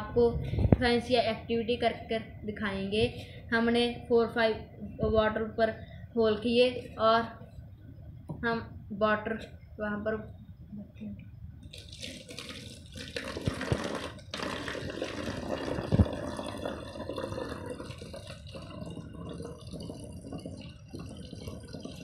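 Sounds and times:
water pouring into bottle: 11.6 - 22.0.

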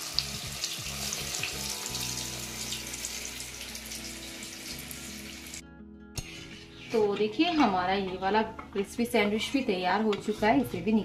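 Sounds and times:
sandwich sizzling in hot oil: 0.0 - 5.6.

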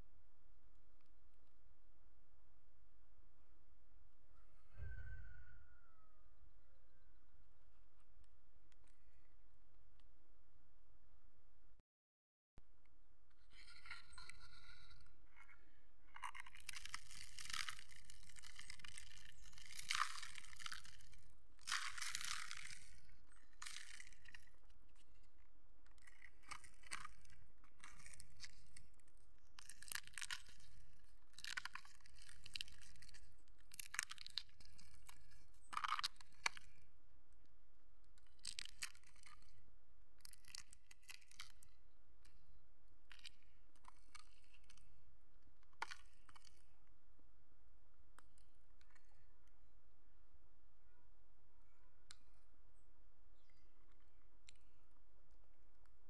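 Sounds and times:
chestnut shells crackling when peeled: 16.2 - 25.3, 25.9 - 36.8, 38.2 - 39.6, 40.2 - 41.7.

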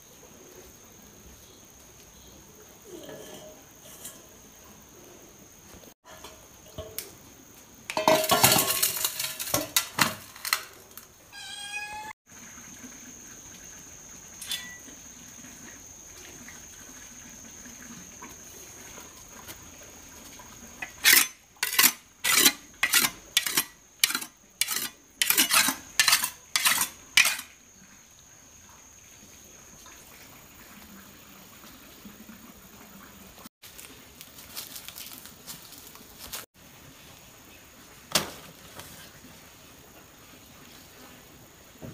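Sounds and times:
loud clatter and rustle: 8.0 - 11.1
knife scraping on rock: 20.8 - 27.5.

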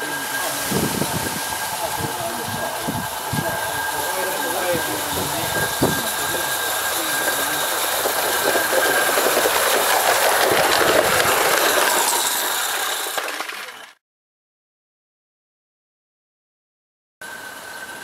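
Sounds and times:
steam hissing: 0.0 - 13.8
rapid fine clicking of wheels: 0.0 - 14.0.

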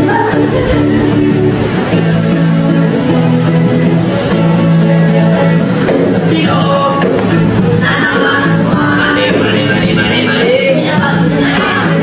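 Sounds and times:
acoustic guitar strumming: 0.0 - 12.0
person singing: 4.6 - 12.0.

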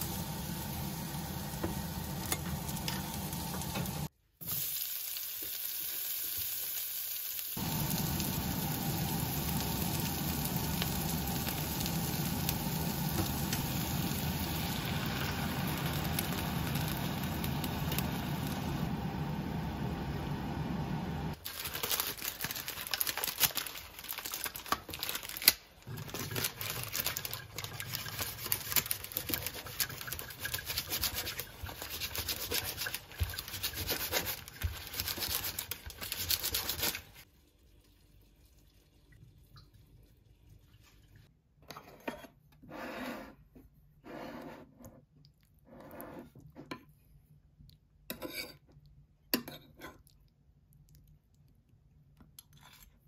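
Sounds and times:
paper crinkling: 21.4 - 37.2.

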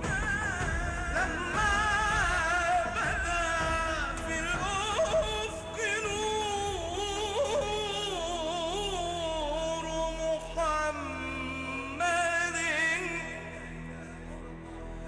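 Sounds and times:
man singing a hymn: 0.0 - 14.7
steady low drone: 0.0 - 15.0.

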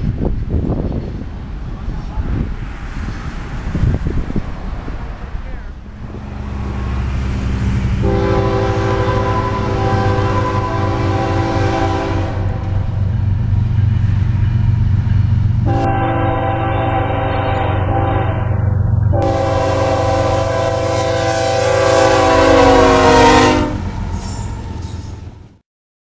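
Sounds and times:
locomotive engine rumble: 0.0 - 25.6
locomotive air horn blasts: 8.0 - 13.0, 15.6 - 24.6.

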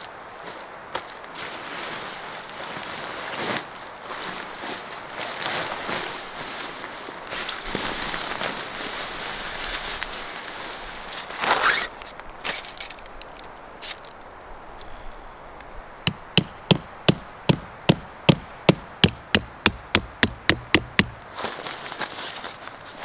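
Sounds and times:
rustle: 0.0 - 16.0, 21.1 - 23.0
hammer striking metal tent stake: 16.1 - 21.2.

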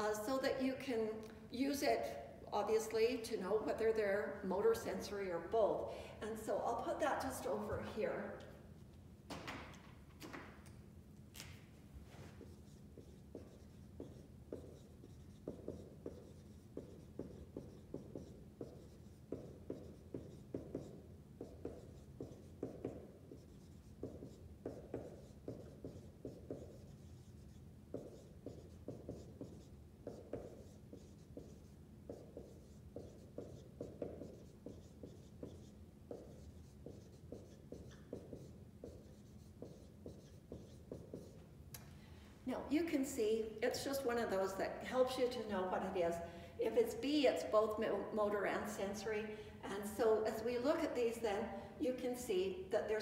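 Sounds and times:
faint low hum: 0.0 - 53.0
marker writing on whiteboard: 11.4 - 41.5.

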